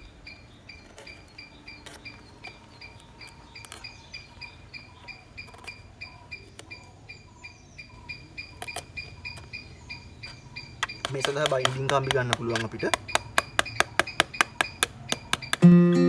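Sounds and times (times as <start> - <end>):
steady high chirping: 0.0 - 16.0
wire clicking in coconut husk: 0.8 - 4.5, 8.4 - 9.6, 10.2 - 15.6.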